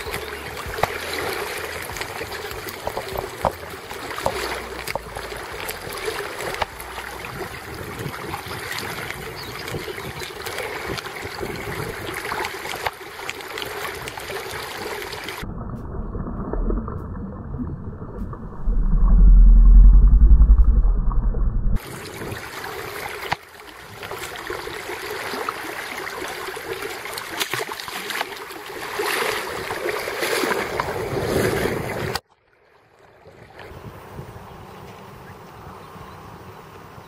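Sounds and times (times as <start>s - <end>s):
small clicks and splashes: 0.0s - 7.4s, 8.1s - 15.5s, 26.2s - 29.4s
river water gurgling: 0.0s - 21.2s, 21.8s - 37.0s
loud low rumble: 15.4s - 21.8s.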